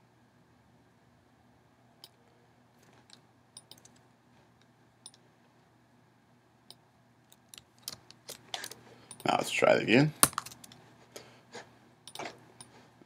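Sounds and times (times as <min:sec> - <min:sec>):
mouse and keyboard clicks: 0:03.6 - 0:04.0.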